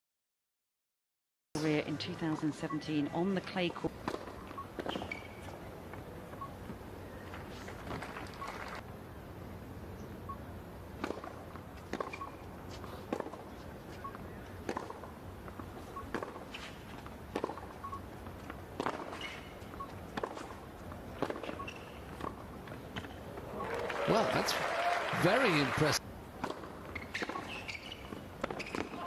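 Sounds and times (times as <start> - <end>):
low arena hum: 1.6 - 29.0
tennis ball bouncing: 3.6 - 5.4, 11.0 - 12.4, 13.1 - 23.2, 26.4 - 29.0
racket striking tennis ball: 11.0 - 12.2, 13.1 - 13.4, 16.1 - 16.6, 17.3 - 17.7, 18.8 - 19.5, 20.1 - 20.6, 26.4 - 29.0.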